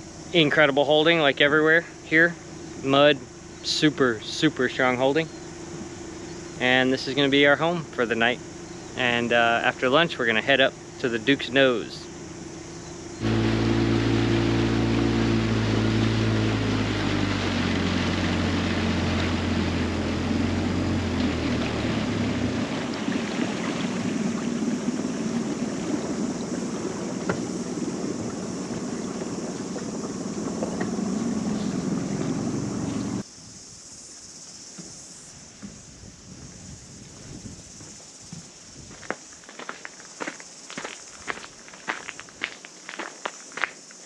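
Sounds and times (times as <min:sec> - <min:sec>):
outboard motor humming: 0:00.0 - 0:33.2
wind: 0:00.0 - 0:44.0
water rushing: 0:13.2 - 0:33.2.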